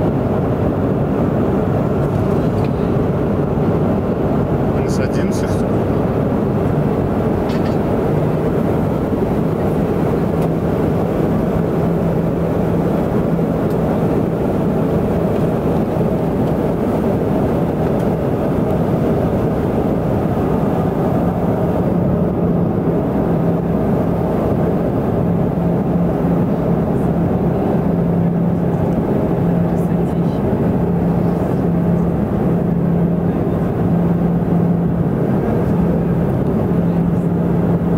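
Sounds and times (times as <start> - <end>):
propeller airplane engines droning: 0.0 - 37.9.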